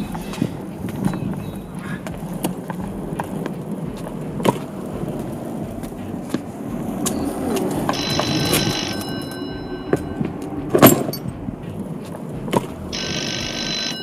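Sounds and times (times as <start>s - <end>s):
suitcase wheels rumbling on concrete: 0.0s - 14.0s
wheels clicking over pavement joints: 0.0s - 14.0s
high-pitched tone: 7.0s - 11.4s, 12.9s - 14.0s.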